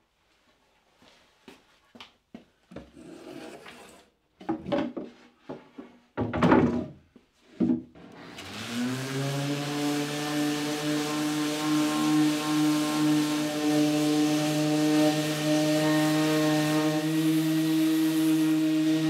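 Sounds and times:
electric sander running: 0:08.2 - 0:19.0.

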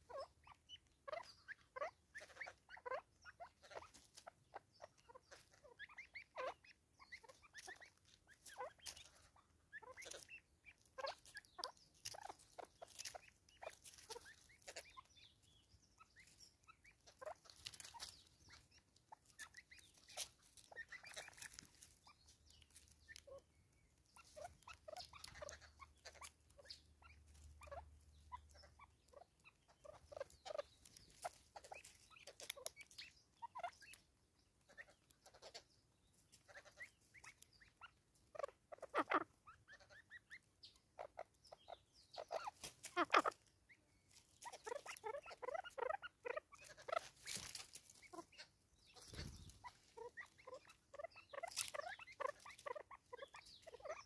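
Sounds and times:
bird pecking at birdseed: 0:07.3 - 0:34.1.

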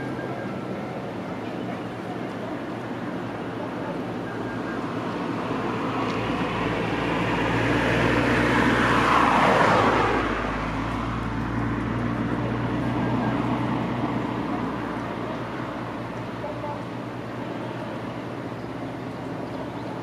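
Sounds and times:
car driving past: 0:04.7 - 0:16.1.

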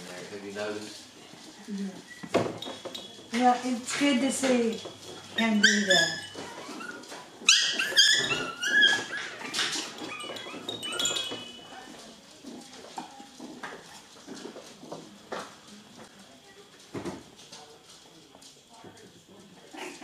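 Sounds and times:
puppies yipping and whining: 0:04.7 - 0:12.1.

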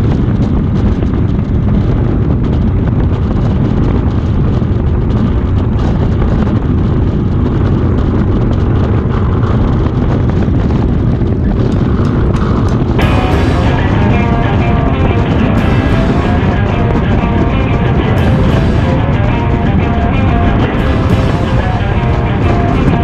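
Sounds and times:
wind rushing over camera: 0:00.0 - 0:13.0
motorcycle engine rumble: 0:00.0 - 0:23.0
music: 0:12.6 - 0:23.0.

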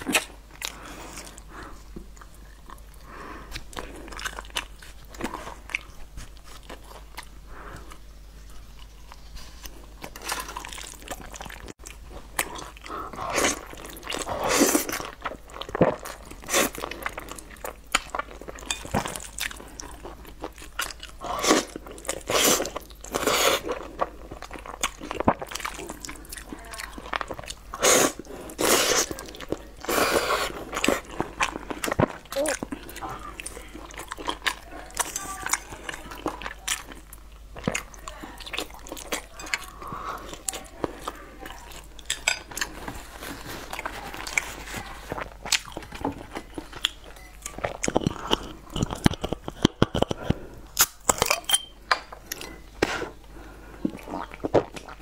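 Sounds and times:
chewing meat: 0:00.0 - 0:51.4, 0:52.0 - 0:55.0
slurping noodles: 0:27.8 - 0:29.2, 0:29.8 - 0:31.7.

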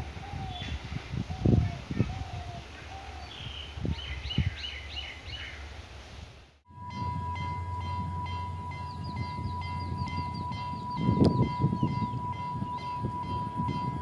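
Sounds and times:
birds chirping: 0:00.0 - 0:05.8, 0:07.0 - 0:14.0
diesel train rumbling: 0:06.6 - 0:14.0
high whine: 0:06.7 - 0:14.0.

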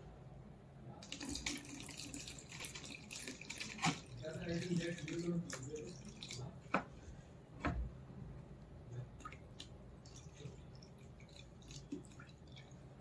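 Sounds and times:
water dripping onto a plate: 0:09.2 - 0:12.8.

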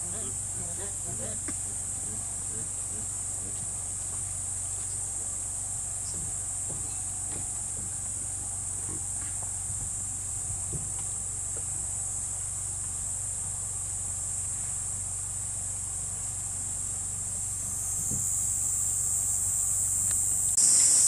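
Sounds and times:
faint low hum: 0:00.0 - 0:20.6
crickets trilling: 0:00.0 - 0:21.0.

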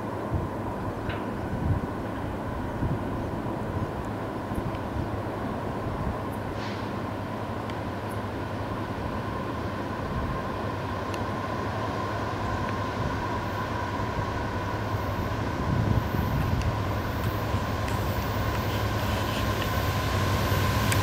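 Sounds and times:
locomotive engine rumble: 0:00.0 - 0:21.0.

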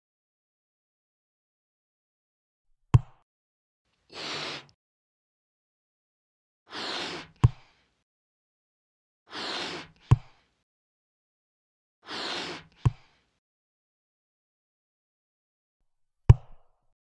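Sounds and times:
hiss of air: 0:04.2 - 0:04.7, 0:06.7 - 0:07.3.

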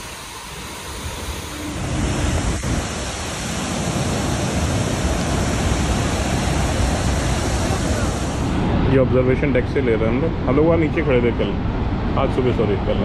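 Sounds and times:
waterfall roaring: 0:00.0 - 0:11.7.

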